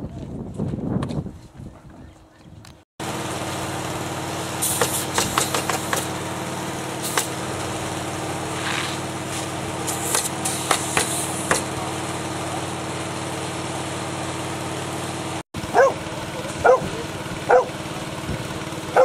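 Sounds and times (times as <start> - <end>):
engine running steadily: 1.8 - 19.0
pneumatic nailers clacking: 4.6 - 11.8.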